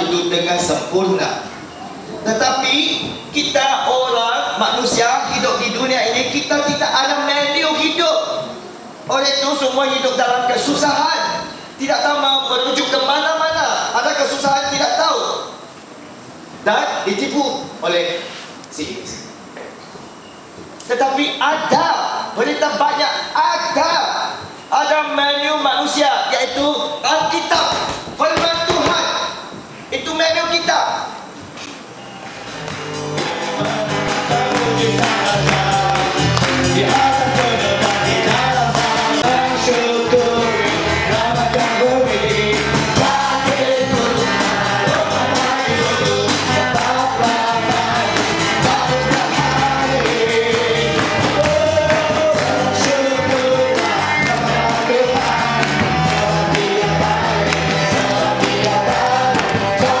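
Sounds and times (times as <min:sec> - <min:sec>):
congregation singing worship song: 0:00.0 - 0:15.7, 0:32.0 - 1:00.0
steady rhythmic beat: 0:32.2 - 1:00.0.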